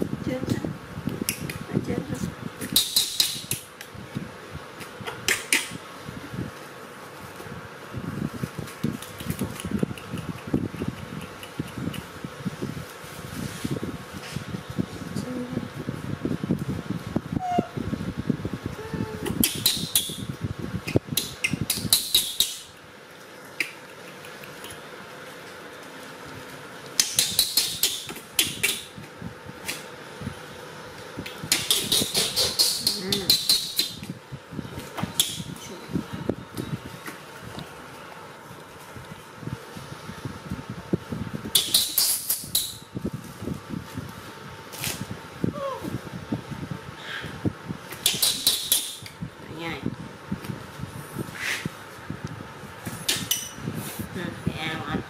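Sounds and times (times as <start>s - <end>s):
electric fan hum: 0.0s - 55.0s
monkey high-pitched screeches: 17.4s - 17.8s, 31.5s - 34.0s.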